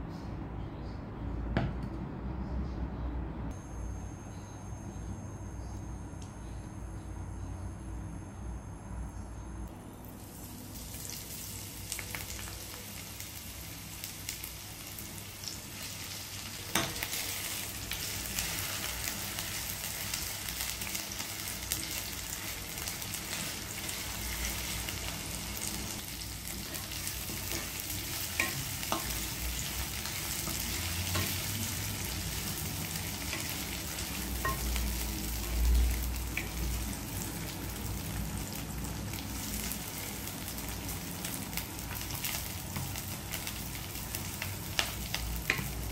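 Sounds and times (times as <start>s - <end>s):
onions sizzling in hot oil: 10.2s - 45.9s.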